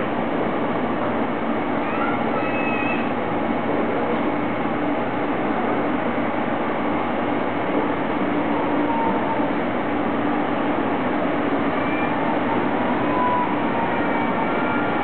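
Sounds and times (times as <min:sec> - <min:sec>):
electric locomotive running: 0:00.0 - 0:15.0.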